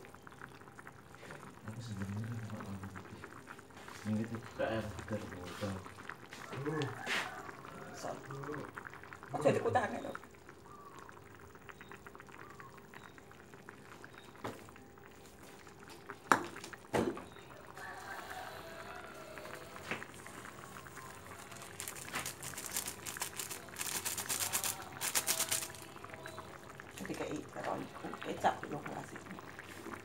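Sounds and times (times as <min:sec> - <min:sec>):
sauce simmering with bubbling crackle: 0:00.0 - 0:30.0
seasoning poured into pan: 0:20.2 - 0:26.4.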